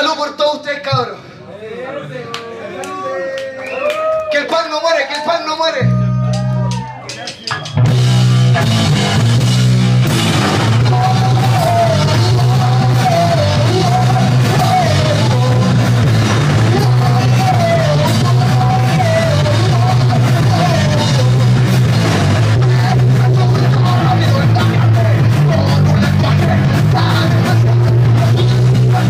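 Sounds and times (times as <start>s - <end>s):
bass guitar: 5.8s - 29.0s
electric guitars: 5.8s - 29.0s
drum kit: 6.0s - 29.0s
person singing: 10.6s - 21.8s, 22.5s - 29.0s.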